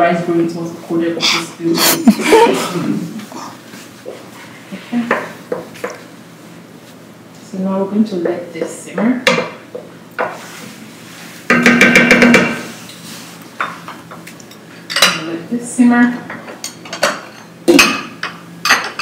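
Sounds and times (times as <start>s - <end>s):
wooden spoon knocking metal pot: 11.5s - 12.6s
cookware clattering: 16.3s - 19.0s.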